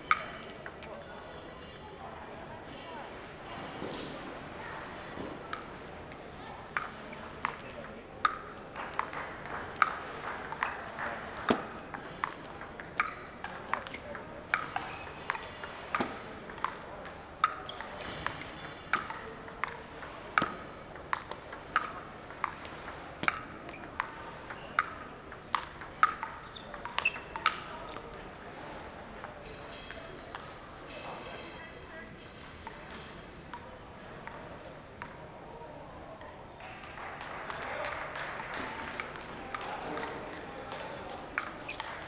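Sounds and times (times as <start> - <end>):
faint chattering voices: 0.0 - 42.0
table tennis ball ticking: 0.1 - 2.1, 5.5 - 28.2, 41.4 - 42.0.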